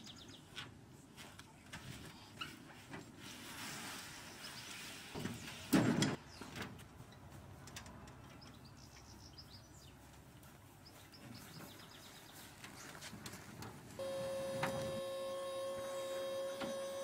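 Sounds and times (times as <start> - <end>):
birds chirping: 8.2 - 12.9.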